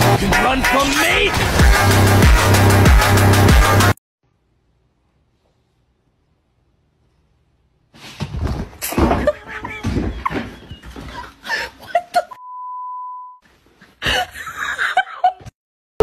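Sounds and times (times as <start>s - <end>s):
censor bleep: 12.4s - 13.4s.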